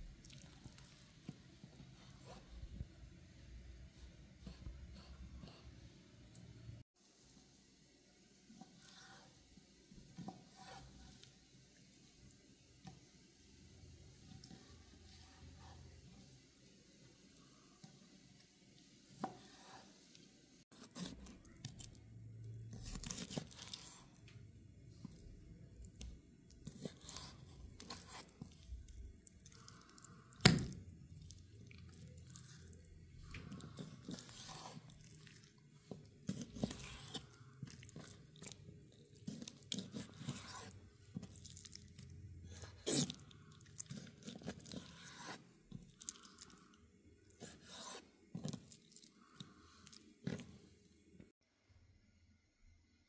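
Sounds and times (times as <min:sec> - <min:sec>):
knife slicing raw chicken: 0:20.8 - 0:21.4, 0:22.7 - 0:24.0, 0:29.9 - 0:30.8, 0:47.4 - 0:48.6.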